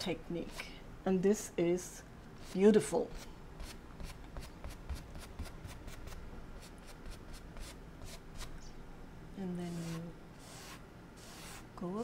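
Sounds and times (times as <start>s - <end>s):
paintbrush strokes on canvas: 9.6s - 11.7s.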